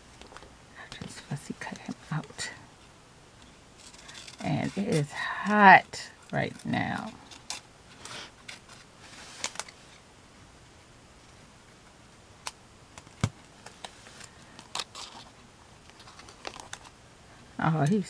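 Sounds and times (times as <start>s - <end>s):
paper rustling: 13.2s - 16.9s.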